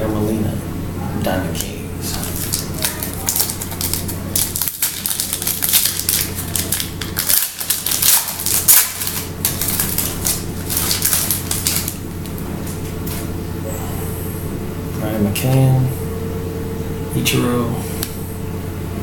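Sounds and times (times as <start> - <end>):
foil wrapper crinkling and tearing: 2.0 - 12.4.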